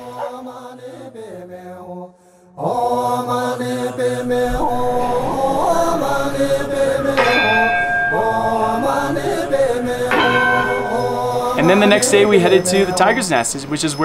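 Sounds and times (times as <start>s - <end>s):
voices chanting: 0.0s - 14.0s
bell ringing: 5.1s - 14.0s.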